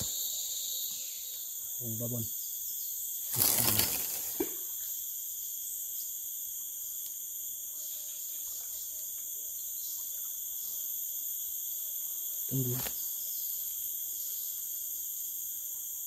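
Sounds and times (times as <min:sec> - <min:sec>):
insects chirping: 0:00.0 - 0:16.0
rustling and handling noise: 0:03.3 - 0:04.6.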